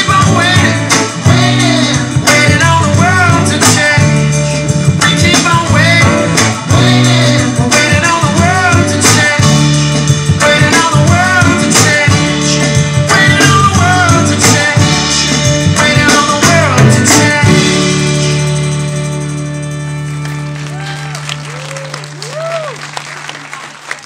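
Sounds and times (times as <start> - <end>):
person singing: 0.0 - 18.2
percussive beat: 0.0 - 19.1
sustained bass notes: 0.0 - 22.6.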